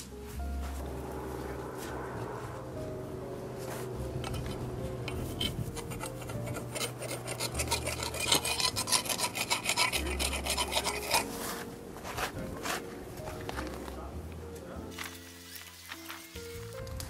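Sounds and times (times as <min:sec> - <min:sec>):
hand tool scraping soil: 0:04.2 - 0:12.8.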